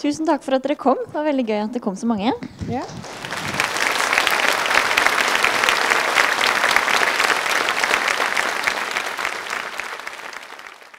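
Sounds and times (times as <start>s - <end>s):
audience applauding: 2.8s - 10.9s.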